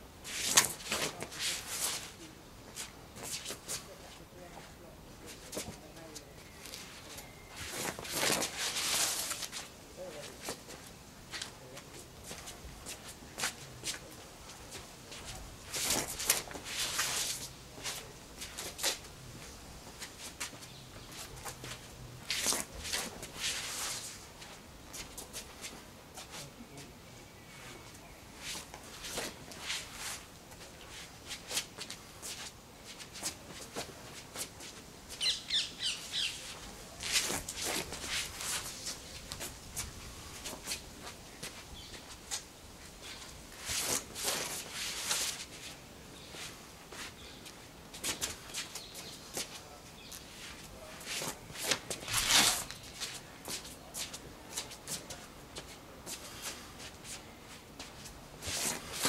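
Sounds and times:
footwork scuffs on paving: 0.2s - 26.5s, 27.6s - 59.0s
bird chirping: 35.2s - 36.4s.

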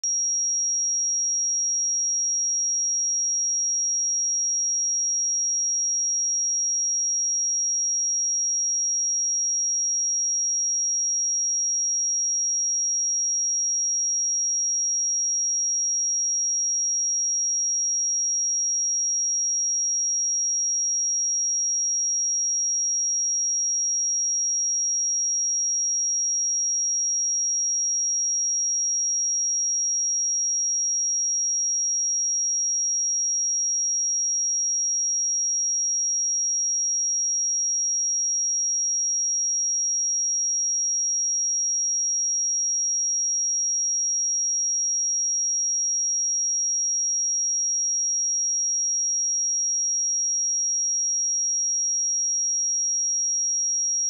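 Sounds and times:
high-pitched sine test tone: 0.0s - 4.7s, 48.1s - 54.0s.

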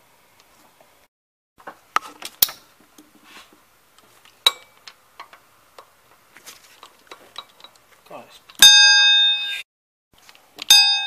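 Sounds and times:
wrench clinking on metal: 4.4s - 5.3s.

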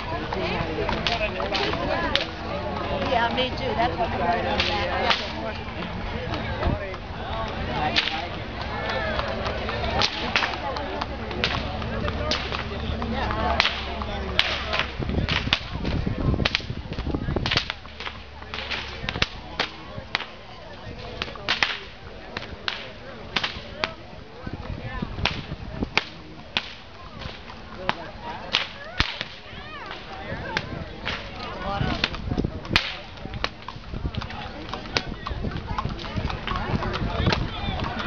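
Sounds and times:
whips cracking: 8.0s - 8.2s, 10.0s - 10.6s, 13.6s - 15.7s, 17.4s - 20.3s, 21.2s - 21.9s, 23.4s - 23.6s, 25.2s - 27.4s, 28.5s - 30.1s, 31.0s - 31.3s, 32.8s - 33.0s.

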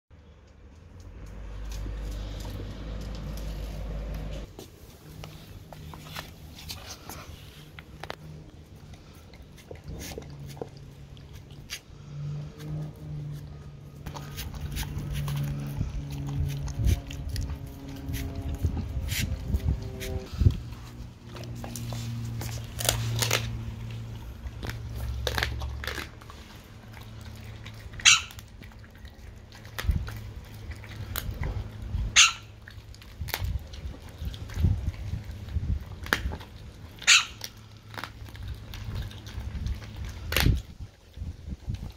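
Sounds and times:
steady low hum: 0.2s - 41.8s
dog biting at meat: 14.1s - 32.4s, 33.0s - 40.8s.

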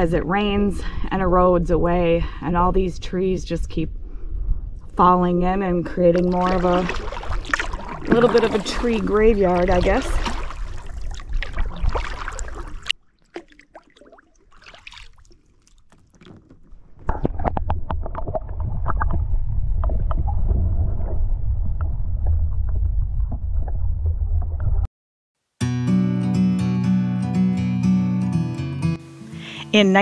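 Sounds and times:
low rumble: 0.0s - 10.3s, 17.5s - 24.9s
paddle strokes splashing: 6.2s - 18.4s.

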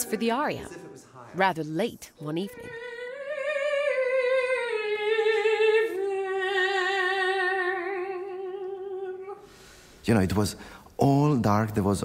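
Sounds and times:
soprano singing with vibrato: 0.0s - 9.5s.

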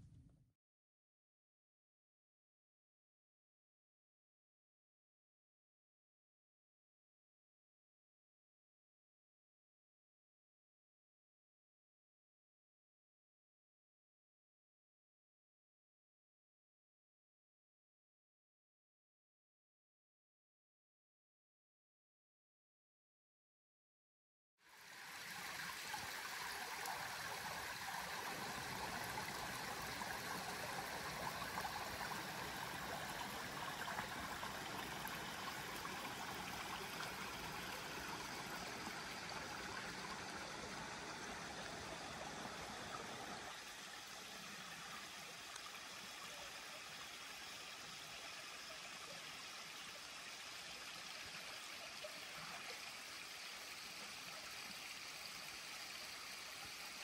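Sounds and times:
stream water rushing: 24.8s - 57.0s.

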